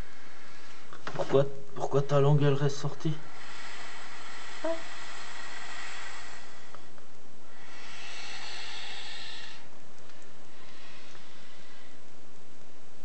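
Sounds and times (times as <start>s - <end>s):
snake hissing: 2.8s - 12.1s.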